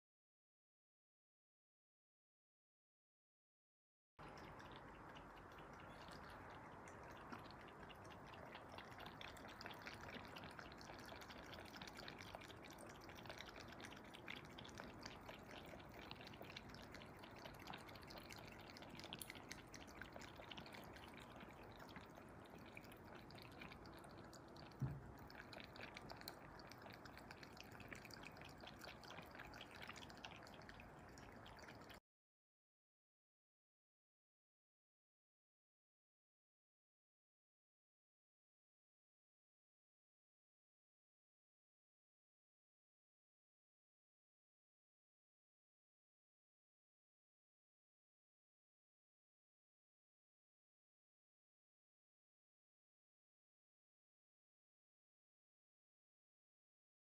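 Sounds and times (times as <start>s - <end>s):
cat lapping water: 4.2s - 32.0s
soft low thump: 24.8s - 25.1s.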